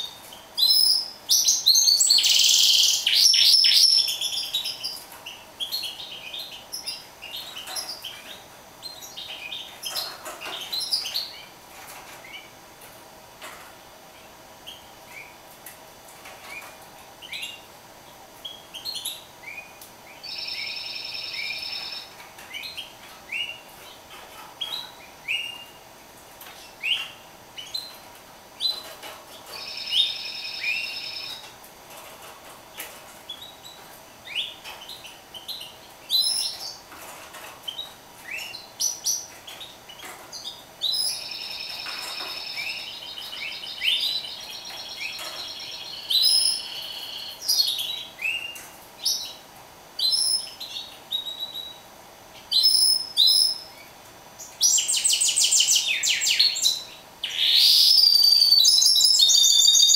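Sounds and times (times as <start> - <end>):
bird chirping and twittering: 0.0 - 12.6, 16.3 - 25.8, 26.4 - 49.4, 50.0 - 51.8, 52.4 - 59.9
bird trilling: 54.7 - 59.9.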